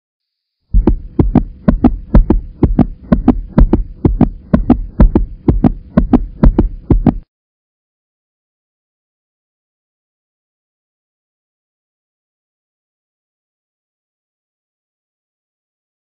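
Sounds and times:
faint steady hum: 0.8s - 7.2s
heartbeat thumps: 0.8s - 7.3s.

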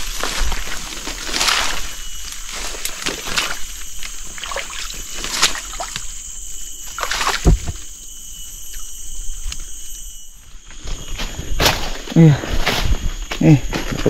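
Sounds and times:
footsteps through undergrowth: 0.0s - 14.0s
heavy thud: 7.4s - 7.8s.

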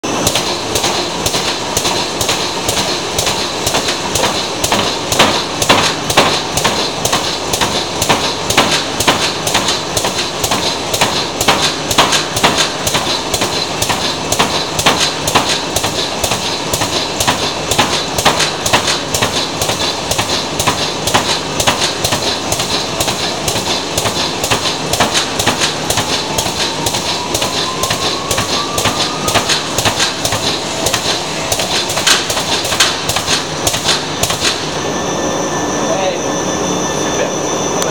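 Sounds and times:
motors and conveyors running: 0.0s - 37.9s
faint rising whine: 34.7s - 37.9s.

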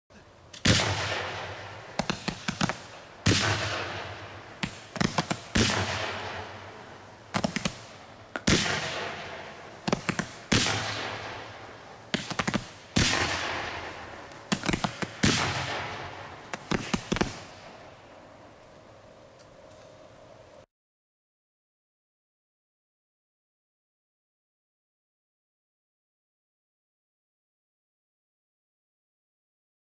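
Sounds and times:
firework cake popping: 0.6s - 17.8s.

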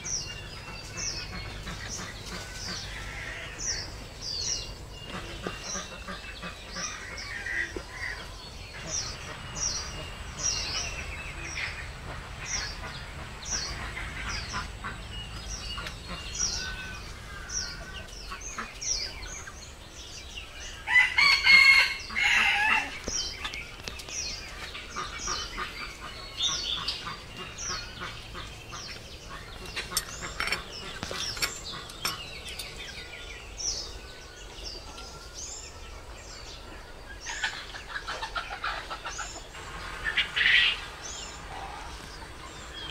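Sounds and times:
rooster crowing: 20.8s - 23.0s
small bird chirping: 22.0s - 42.9s.

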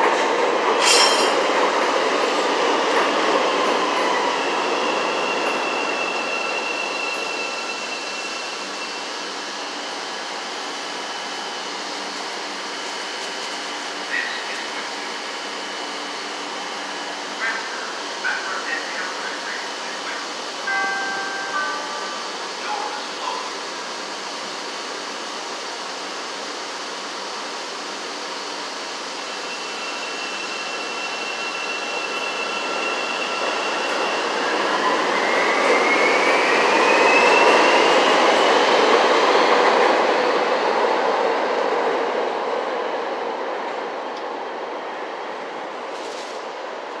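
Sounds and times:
train wheels on rail: 0.0s - 47.0s.

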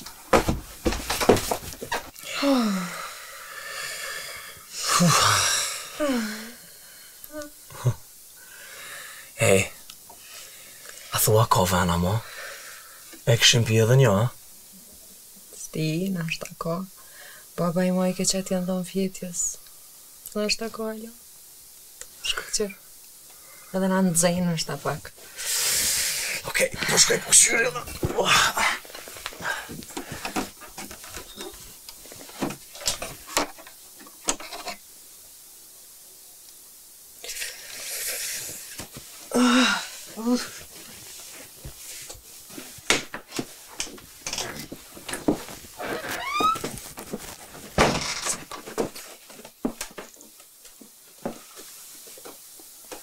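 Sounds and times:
rustling and handling noises: 0.0s - 2.2s, 26.8s - 34.9s, 40.0s - 53.0s.

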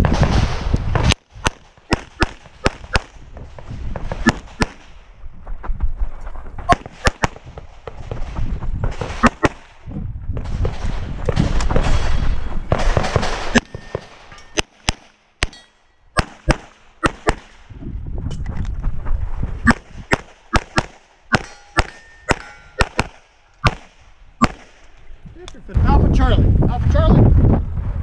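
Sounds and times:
handgun shots: 1.4s - 3.1s, 4.2s - 4.9s, 6.7s - 7.4s, 16.2s - 17.5s, 19.7s - 24.9s.

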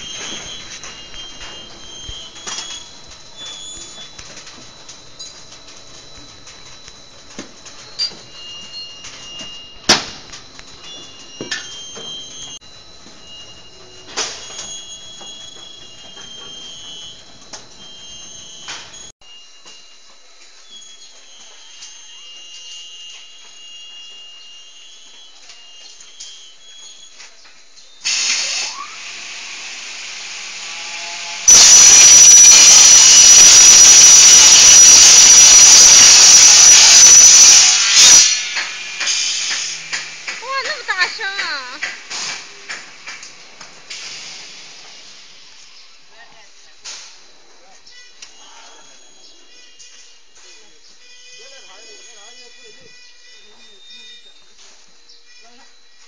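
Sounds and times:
cutting saw whining: 0.0s - 27.3s, 28.0s - 43.2s
production line mechanical noise: 0.0s - 56.0s.

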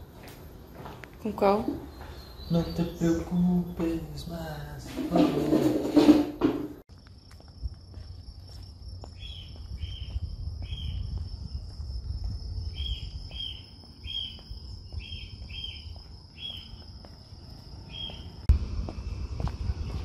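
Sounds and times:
insect chirps: 6.9s - 20.0s
low rumble: 18.3s - 20.0s.

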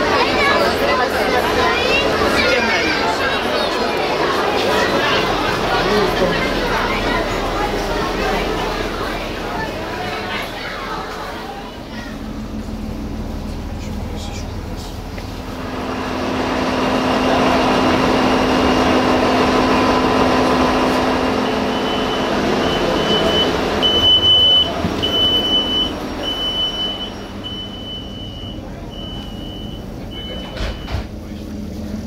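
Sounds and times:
train engine and machinery hum: 0.0s - 32.0s
high electronic warning beep: 21.7s - 31.0s.

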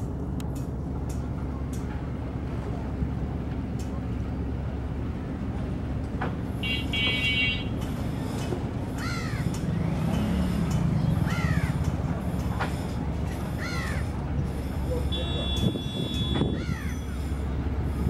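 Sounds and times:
boat engine drone: 0.0s - 18.0s
crow cawing: 9.0s - 9.5s, 11.3s - 11.8s, 13.6s - 14.0s, 16.6s - 17.0s.

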